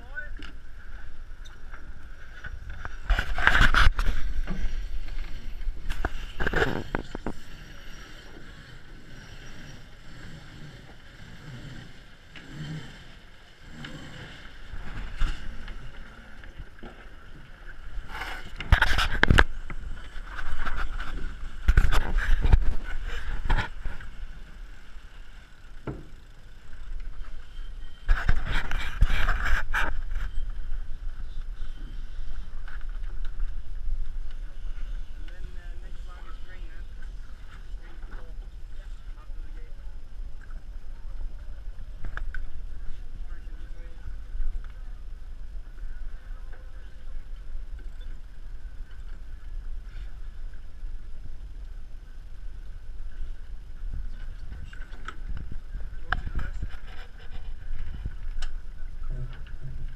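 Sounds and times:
wind rumble on microphone: 0:00.0 - 0:24.8, 0:25.6 - 0:59.9
water rushing along hulls: 0:00.0 - 0:59.9.

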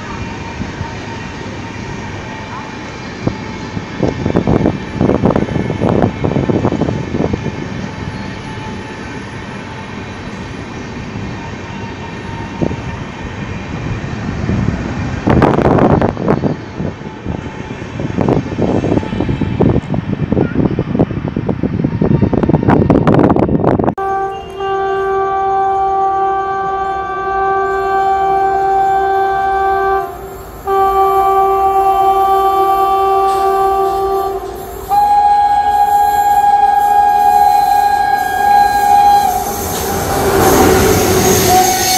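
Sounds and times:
train wheels rumbling on rail: 0:00.0 - 0:41.9
locomotive air horn blasts: 0:24.0 - 0:41.9.

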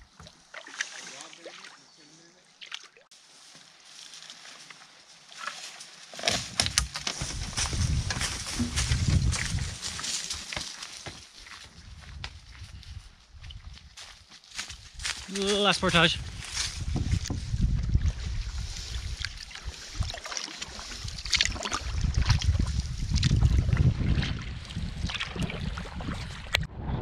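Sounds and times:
water sloshing around canoe: 0:00.0 - 0:01.9, 0:18.5 - 0:26.6
rustling: 0:03.2 - 0:11.1.

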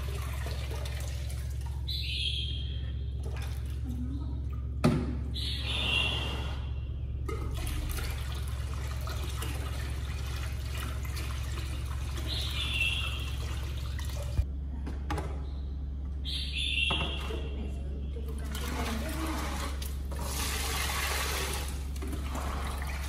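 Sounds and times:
water running into plastic basin: 0:00.0 - 0:02.0, 0:03.2 - 0:05.0, 0:07.3 - 0:14.4, 0:18.3 - 0:23.0.

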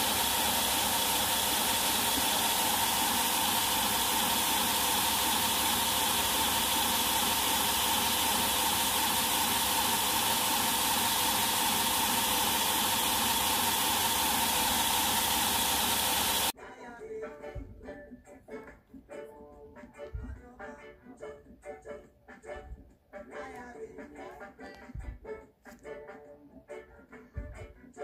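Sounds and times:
belt grinder running: 0:00.0 - 0:16.5.

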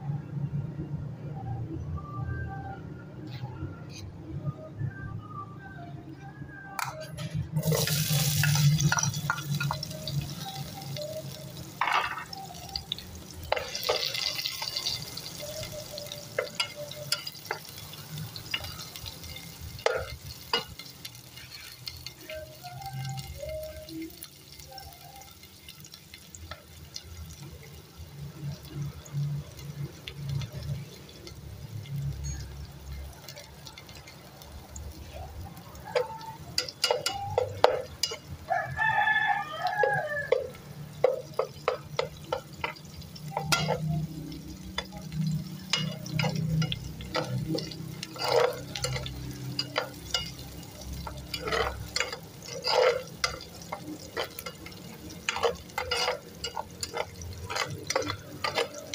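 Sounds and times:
spoon scraping metal pot: 0:06.8 - 0:10.6, 0:35.9 - 0:38.3, 0:39.8 - 0:58.9.

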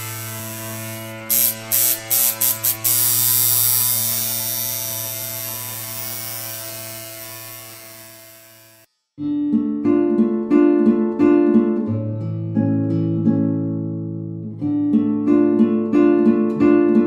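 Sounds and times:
loud static bursts: 0:00.0 - 0:08.9
low electrical buzz: 0:00.0 - 0:08.9
static hiss: 0:00.0 - 0:08.9.

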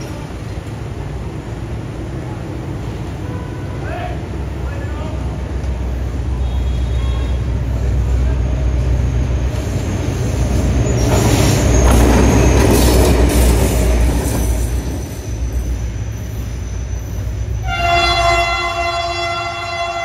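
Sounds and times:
locomotive engine rumble: 0:00.0 - 0:20.0
locomotive horn blast: 0:17.6 - 0:20.0.

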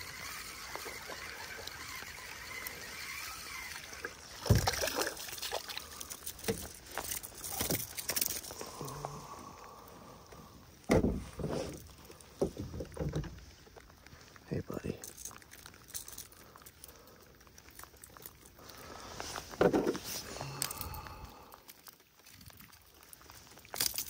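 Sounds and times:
fish splashing in water: 0:00.0 - 0:10.9.

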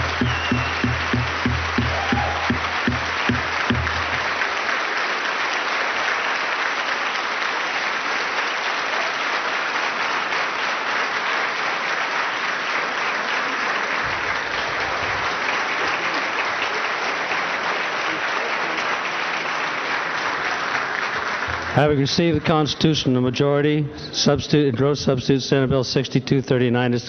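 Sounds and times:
low rhythmic beat: 0:00.0 - 0:04.4, 0:21.5 - 0:22.5
crowd applauding: 0:00.0 - 0:23.0.

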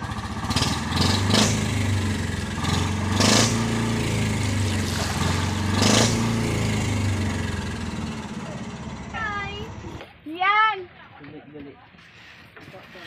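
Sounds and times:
boat engine running: 0:00.0 - 0:10.1.

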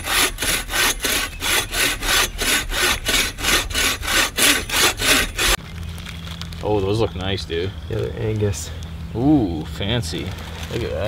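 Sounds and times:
bow saw cutting log: 0:00.0 - 0:05.6.

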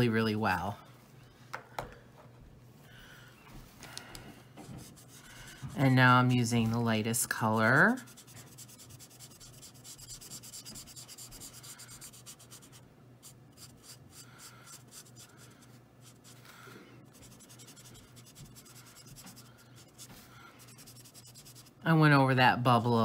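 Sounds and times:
marker nib scratching on paper: 0:04.7 - 0:06.0, 0:07.6 - 0:16.5, 0:17.1 - 0:21.8.

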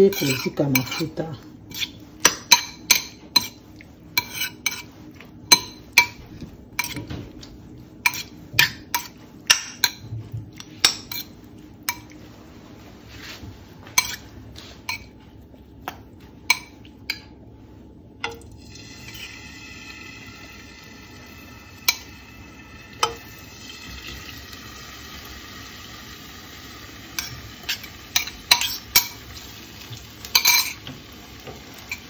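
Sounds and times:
cutlery clinking against a bowl: 0:00.0 - 0:12.2, 0:13.9 - 0:15.2, 0:15.9 - 0:17.4, 0:21.8 - 0:22.1, 0:23.0 - 0:23.3, 0:27.2 - 0:29.3, 0:30.2 - 0:32.0.

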